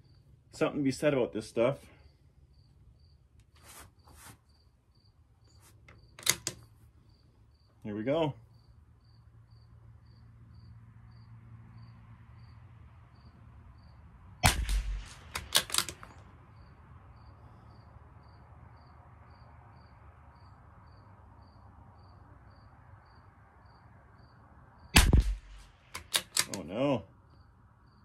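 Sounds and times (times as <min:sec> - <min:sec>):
rifle bolt metallic clicks: 0:05.9 - 0:06.7, 0:14.4 - 0:16.2, 0:25.0 - 0:26.8
rifle shot: 0:14.4 - 0:16.2, 0:25.0 - 0:26.6.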